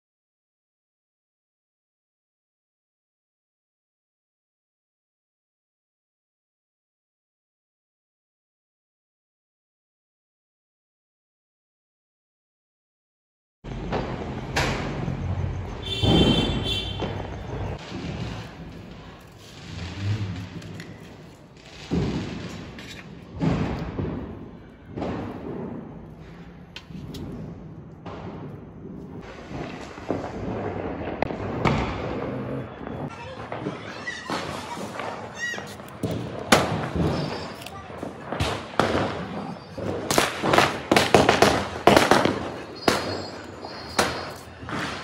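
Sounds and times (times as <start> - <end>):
firecracker booms: 13.7 - 45.0
faint sharp firecracker cracks: 33.1 - 45.0.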